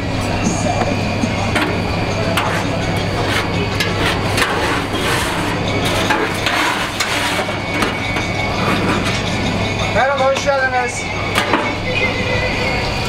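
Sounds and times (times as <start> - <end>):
steady low hum: 0.0 - 13.0
metal tool scraping drip tray: 2.4 - 9.2.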